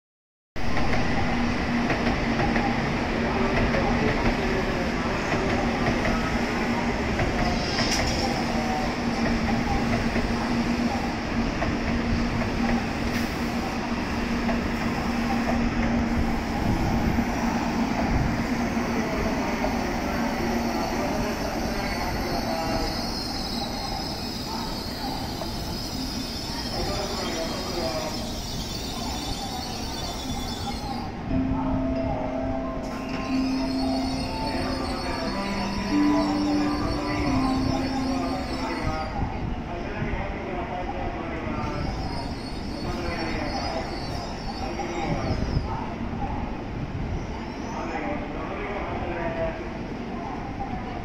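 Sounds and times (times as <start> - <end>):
train wheels rumbling on rails: 0.6 - 31.3.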